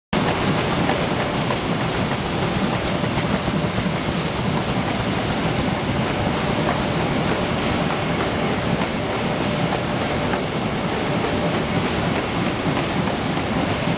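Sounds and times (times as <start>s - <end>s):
machine running with steady rush: 0.2s - 13.9s.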